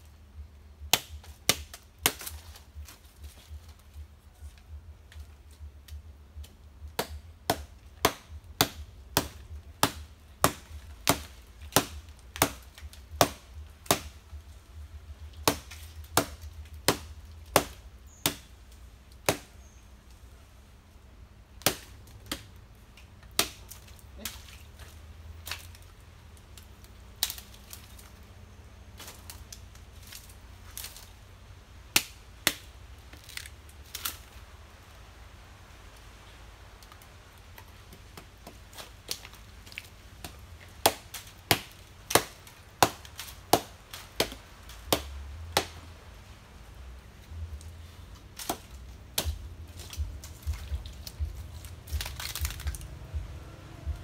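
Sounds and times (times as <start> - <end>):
chopping strikes on palm fruit: 0.9 - 2.6, 6.9 - 14.2, 15.4 - 18.5, 19.2 - 19.7, 21.6 - 22.5, 23.4 - 24.7, 31.9 - 34.2, 40.2 - 45.8, 48.4 - 51.3.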